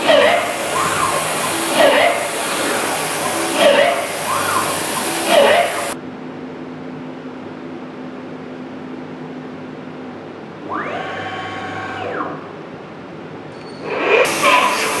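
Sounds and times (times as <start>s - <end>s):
milling machine humming: 0.0s - 6.0s, 9.6s - 15.0s
motors whining up and down: 0.0s - 6.0s, 10.6s - 12.6s, 13.6s - 15.0s.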